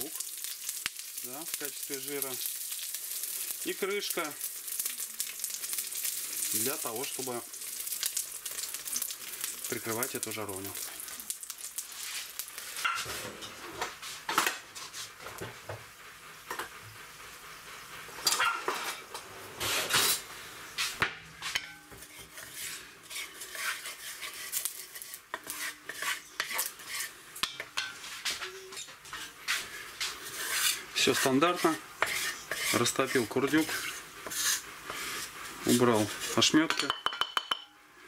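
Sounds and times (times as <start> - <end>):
fat sizzling in a pan: 0.0 - 38.0
wooden spatula stirring: 20.8 - 37.0
scrapes and knocks against pan: 21.4 - 35.3.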